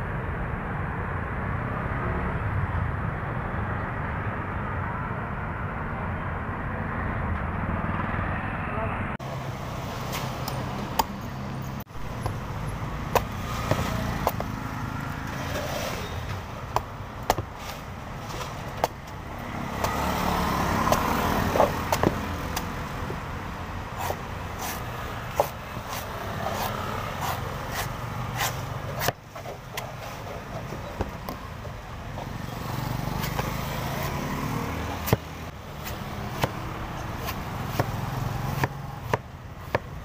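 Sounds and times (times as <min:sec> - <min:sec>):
street traffic hum: 0:00.0 - 0:40.0
cleaver chopping coconut: 0:13.1 - 0:14.6, 0:16.7 - 0:22.7, 0:24.0 - 0:29.9, 0:33.2 - 0:40.0.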